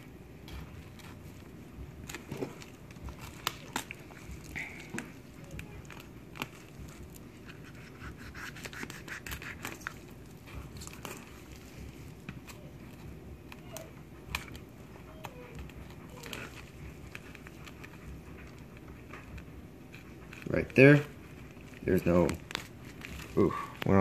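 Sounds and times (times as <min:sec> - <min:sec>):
knife scraping through fish: 0:07.4 - 0:11.3.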